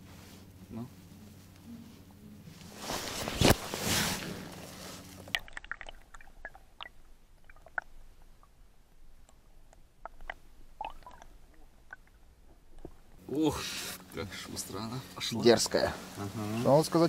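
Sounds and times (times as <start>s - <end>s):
water splashing and sloshing: 2.9s - 13.2s
small underwater clicks and taps: 5.2s - 8.6s, 9.2s - 13.2s.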